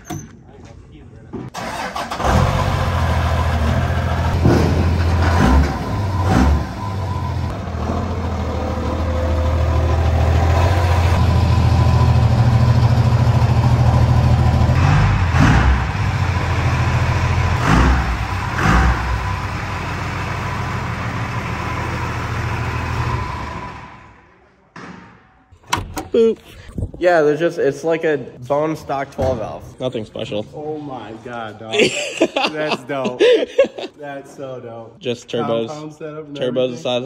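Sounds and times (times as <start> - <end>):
diesel truck engine drone: 1.6 - 24.4.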